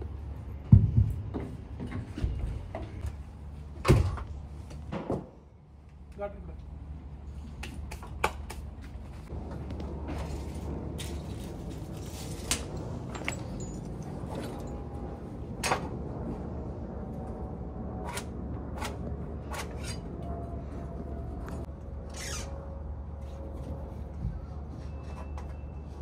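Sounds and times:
steady low rumble: 8.6 - 24.7.

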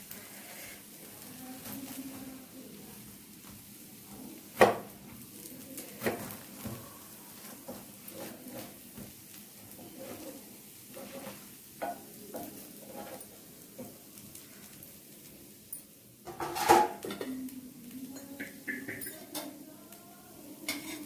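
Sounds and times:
faint sizzle: 0.0 - 21.0
spatula knocking and scraping pan: 7.4 - 14.0, 16.2 - 17.3, 18.2 - 19.5, 20.7 - 21.0.

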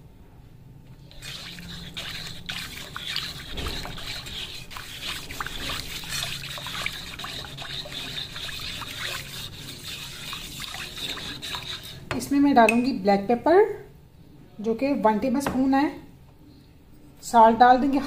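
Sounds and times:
whisk sloshing sauce in a pan: 1.1 - 12.3
whisk tapping against pan: 1.2 - 12.8.

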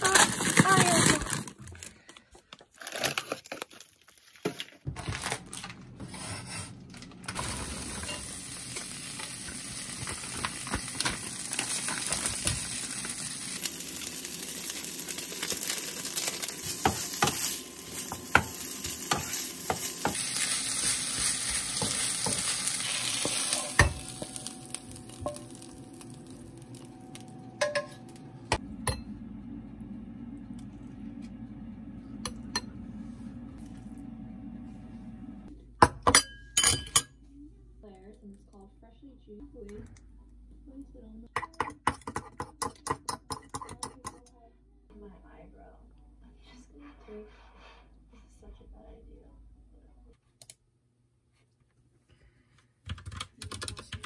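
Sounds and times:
rice sizzling in frying pan: 7.3 - 27.6
spoon clinking on ceramic bowl: 36.0 - 37.1.

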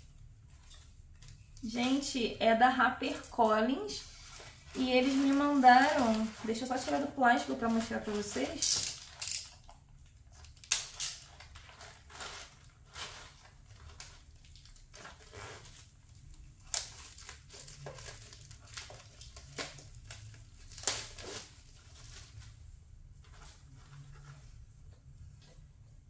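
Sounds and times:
plastic shrink wrap tearing: 3.0 - 22.5.

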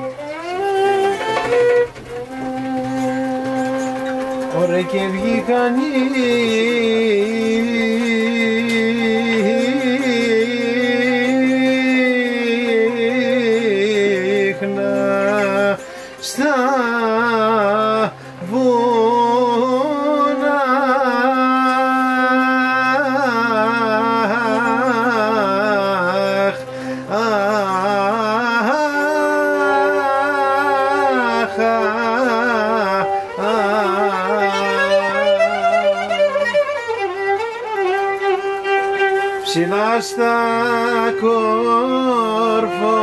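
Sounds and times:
held accompanying notes: 0.0 - 43.0
violin melody: 0.0 - 43.0.

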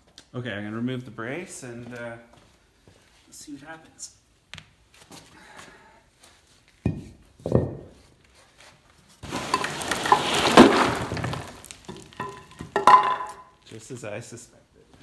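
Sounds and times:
gravel spilling onto concrete: 9.2 - 13.0.

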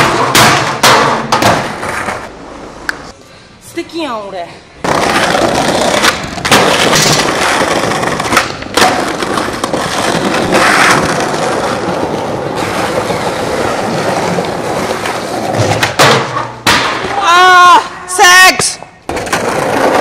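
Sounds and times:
skateboard wheels rolling on tiles: 0.0 - 3.2, 4.8 - 17.2, 19.0 - 20.0
skateboard clacks: 4.8 - 17.2.

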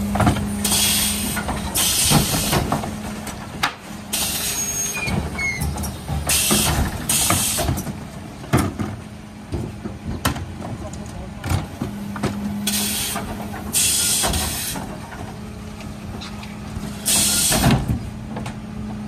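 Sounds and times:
bins and lifter clanking: 0.0 - 19.0
truck humming: 0.0 - 19.0
bursts of hissing air: 12.6 - 14.8, 17.0 - 17.7.

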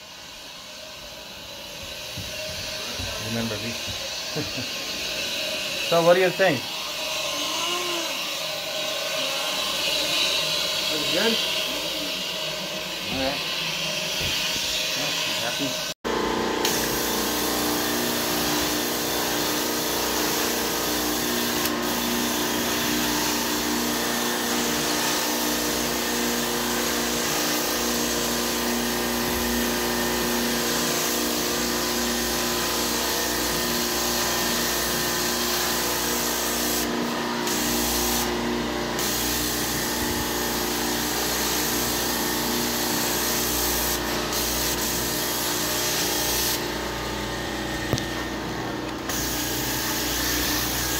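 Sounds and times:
vacuum motor hum: 0.3 - 50.9
spray jets hissing: 9.2 - 15.7, 16.6 - 38.3, 39.0 - 46.7.

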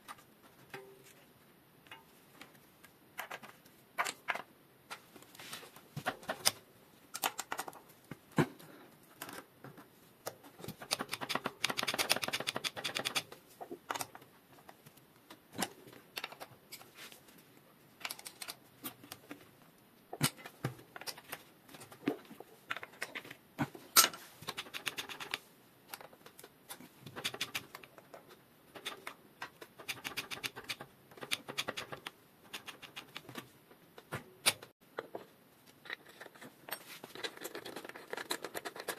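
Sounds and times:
metal clicks and scrapes: 34.4 - 38.9.

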